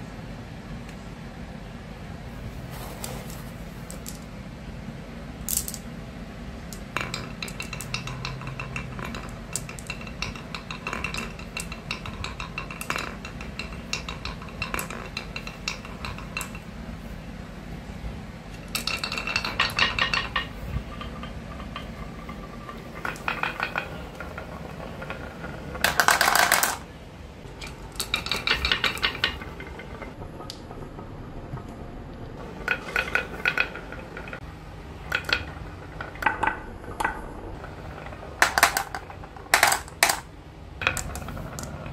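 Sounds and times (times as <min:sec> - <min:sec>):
glass marbles rattling on track: 0:06.6 - 0:17.0, 0:18.5 - 0:26.9, 0:27.5 - 0:30.7, 0:32.4 - 0:41.9.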